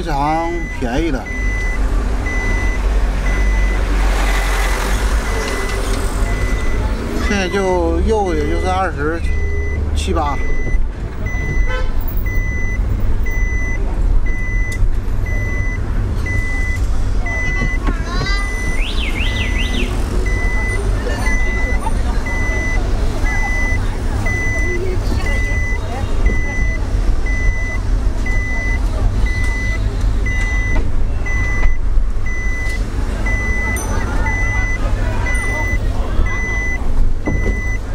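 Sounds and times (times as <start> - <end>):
car driving rumble: 0.0 - 37.9
electronic beeping: 0.6 - 3.9, 5.2 - 7.8, 18.5 - 37.8.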